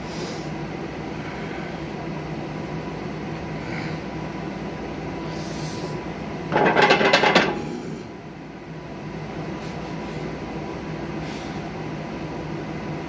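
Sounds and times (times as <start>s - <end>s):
faint hissing breaths: 0.0s - 2.0s, 3.5s - 4.2s, 5.2s - 6.1s
air handling hum: 0.0s - 13.0s.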